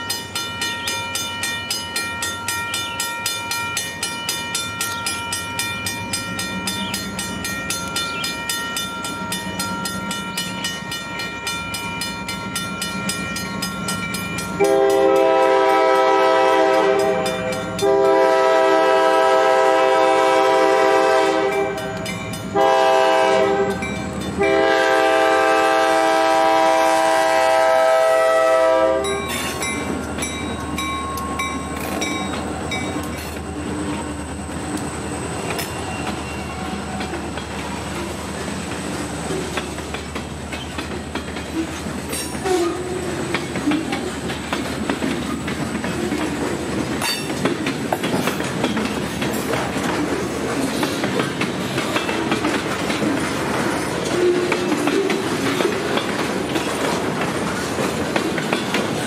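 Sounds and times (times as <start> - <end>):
crossing bell ringing: 0.0 - 26.9, 27.7 - 40.6, 47.0 - 48.2
diesel locomotive engines: 0.0 - 59.0
locomotive air horn: 14.6 - 22.0, 22.6 - 23.8, 24.4 - 29.4, 42.4 - 43.1.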